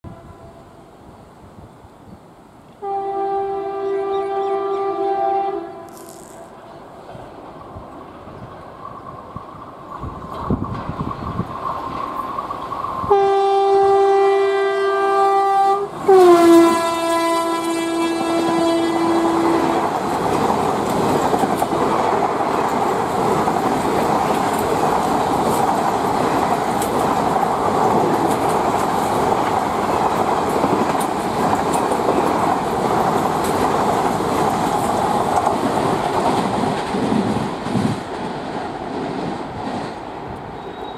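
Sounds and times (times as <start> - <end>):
locomotive horn blasts: 0.0 - 0.8, 2.8 - 6.6, 13.1 - 19.9
train rushing past: 2.8 - 40.9
wheels clicking over rail joints: 5.9 - 13.2, 16.0 - 40.9.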